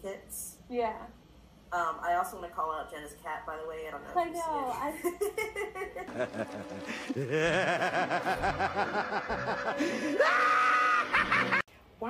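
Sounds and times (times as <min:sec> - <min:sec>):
person laughing in quick chuckles: 0:05.2 - 0:10.2.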